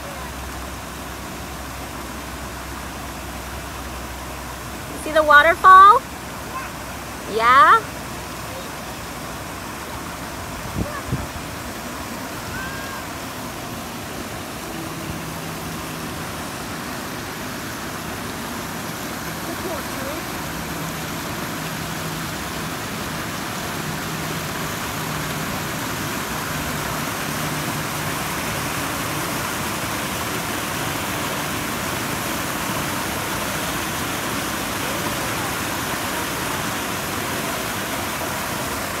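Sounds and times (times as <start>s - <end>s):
waterfall splashing into pool: 0.0s - 39.0s.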